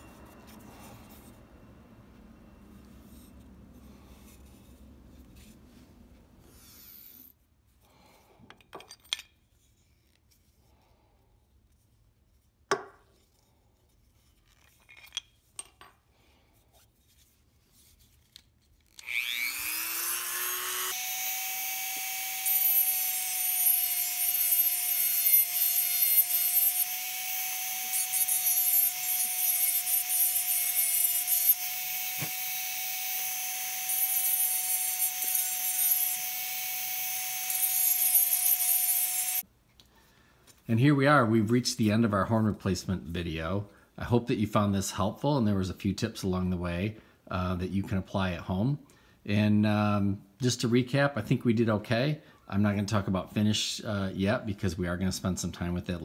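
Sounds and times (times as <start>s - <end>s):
rotary tool whining: 18.9s - 39.4s
rotary bit grinding wood: 19.0s - 39.4s.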